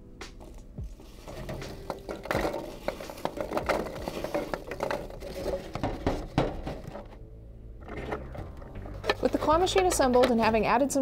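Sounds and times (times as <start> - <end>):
hands shifting packing peanuts: 0.8 - 7.1.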